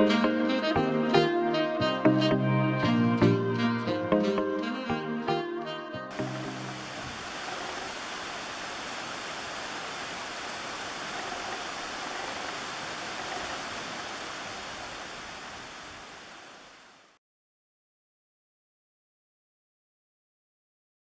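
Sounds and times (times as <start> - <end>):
steady rushing noise: 6.1 - 17.2.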